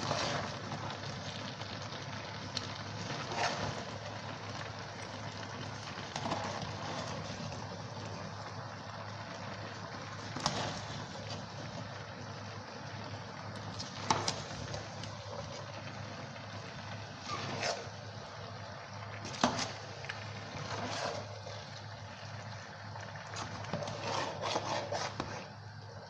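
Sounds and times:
spoon stirring thick soup: 0:02.6 - 0:04.6, 0:09.7 - 0:11.6, 0:17.2 - 0:18.2, 0:19.2 - 0:25.6.

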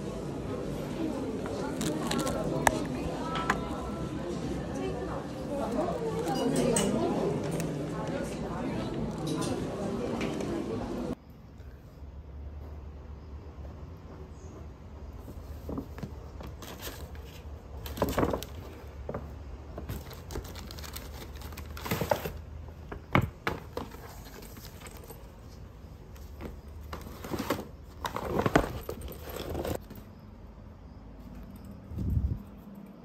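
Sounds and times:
paper bag rustling and crinkling: 0:01.5 - 0:03.0, 0:15.6 - 0:19.2, 0:19.8 - 0:22.5, 0:26.4 - 0:29.9.

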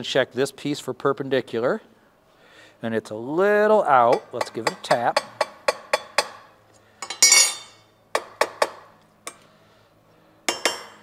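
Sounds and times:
mallet tapping steel tube: 0:04.1 - 0:07.4
steel clanking on steel: 0:07.0 - 0:07.8.

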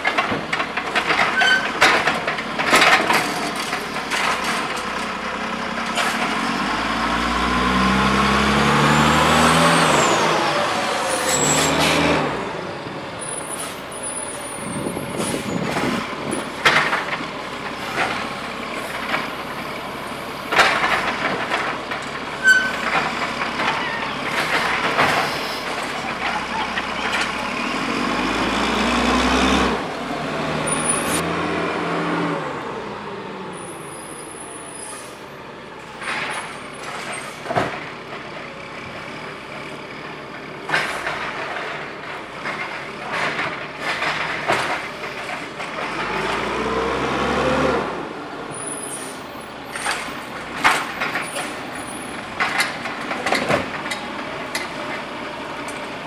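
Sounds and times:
diesel engine revving: 0:04.4 - 0:23.6, 0:24.2 - 0:33.6, 0:43.8 - 0:56.0
cart clanking: 0:14.4 - 0:28.2, 0:48.6 - 0:56.0.

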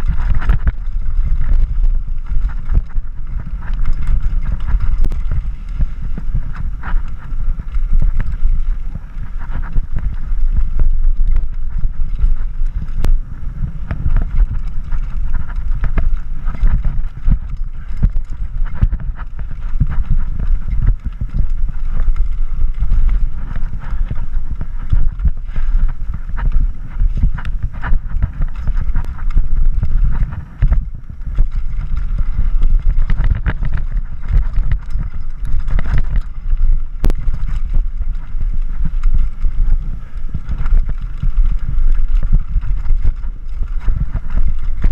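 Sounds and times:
bike knocks and rattles: 0:00.0 - 0:44.9
wind buffeting microphone: 0:00.0 - 0:44.9.

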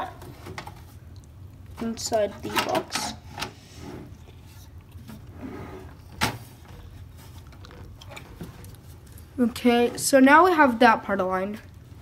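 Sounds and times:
board scraping in metal case: 0:05.3 - 0:06.1.

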